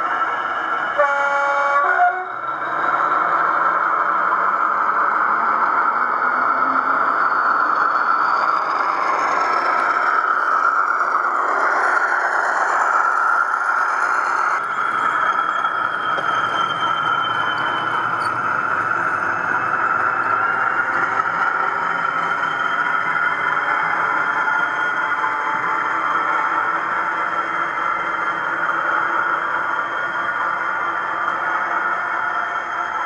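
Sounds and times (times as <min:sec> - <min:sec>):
recorded diesel engine sound: 0:00.0 - 0:33.0
model train horn blast: 0:01.0 - 0:02.3.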